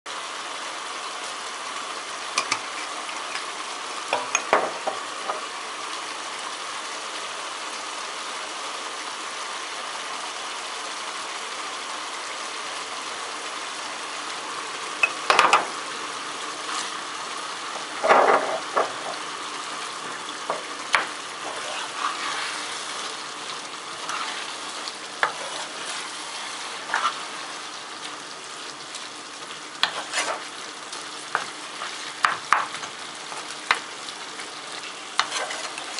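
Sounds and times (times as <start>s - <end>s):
meat sizzling in a frying pan: 0.1s - 35.9s
wooden spoon scraping a pan: 20.4s - 27.7s, 29.8s - 30.6s, 31.3s - 33.8s, 34.8s - 35.9s.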